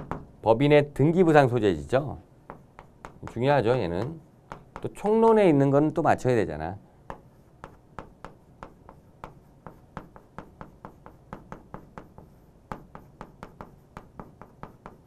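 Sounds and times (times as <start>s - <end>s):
chalk tapping on chalkboard: 0.0s - 0.3s, 1.9s - 6.0s, 7.0s - 15.0s.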